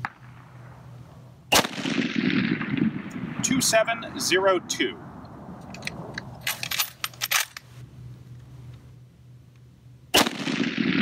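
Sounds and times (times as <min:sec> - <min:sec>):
rifle shot: 0:01.5 - 0:03.8, 0:10.1 - 0:11.0
rifle bolt metallic clicks: 0:05.6 - 0:07.7.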